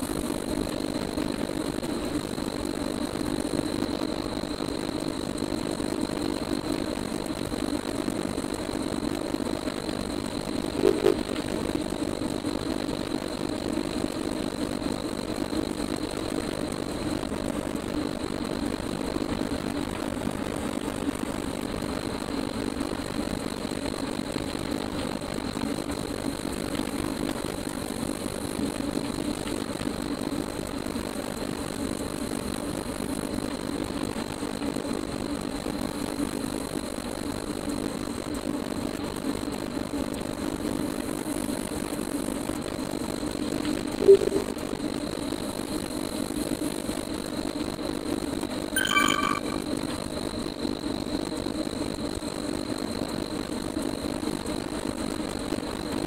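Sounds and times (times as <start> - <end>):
indoor cycling trainer whirring: 0.0 - 48.5, 50.3 - 56.0
short beeps: 10.8 - 11.2, 44.0 - 44.6, 48.8 - 49.8.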